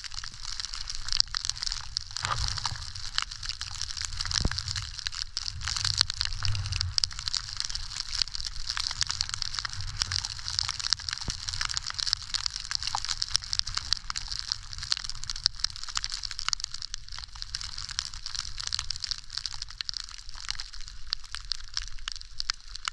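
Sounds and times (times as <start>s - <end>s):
low rumble: 1.3s - 15.6s
skis hissing on snow: 2.2s - 8.7s.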